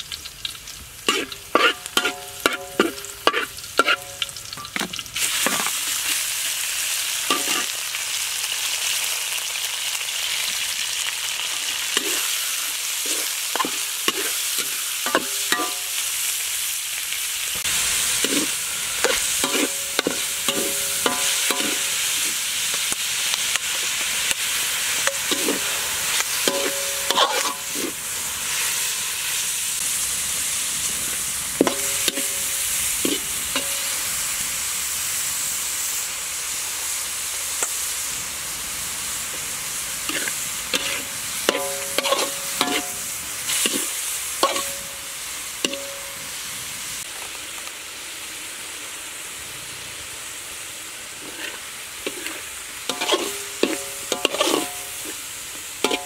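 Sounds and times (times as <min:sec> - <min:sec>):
pork sizzling in a wok: 0:00.0 - 0:56.0
metal spatula scraping a wok: 0:01.0 - 0:06.3, 0:07.2 - 0:07.8, 0:11.8 - 0:16.1, 0:17.8 - 0:22.5, 0:24.8 - 0:29.4, 0:31.1 - 0:34.1, 0:40.0 - 0:46.4, 0:51.2 - 0:56.0.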